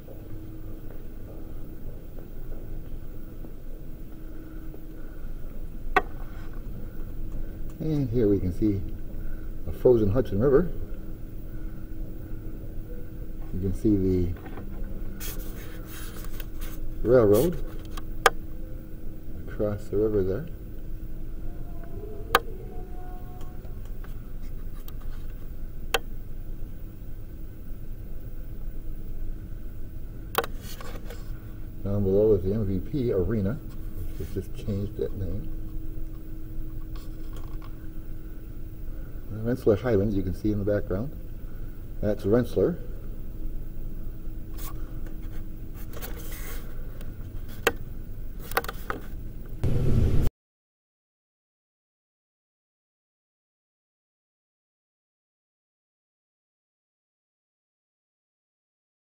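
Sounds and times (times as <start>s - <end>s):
low room rumble: 0.0s - 50.3s
camera handling rubbing: 15.2s - 18.1s, 30.4s - 31.4s, 36.7s - 37.8s, 44.6s - 46.6s, 48.4s - 49.2s
sharp click: 30.4s - 30.6s
elevator rumble: 49.6s - 50.3s.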